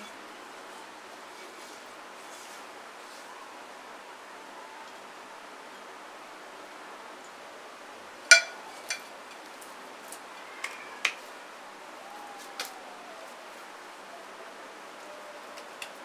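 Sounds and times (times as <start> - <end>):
ceramic crockery clinking: 8.3 - 9.0.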